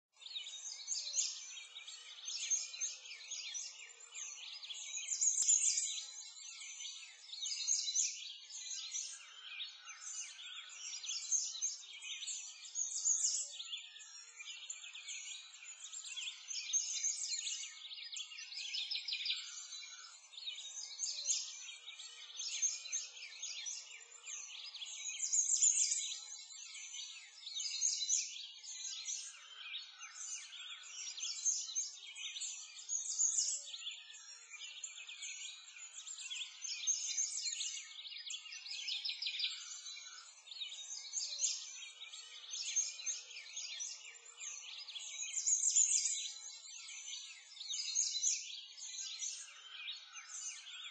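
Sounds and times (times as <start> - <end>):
small birds chirping: 0.0 - 50.9.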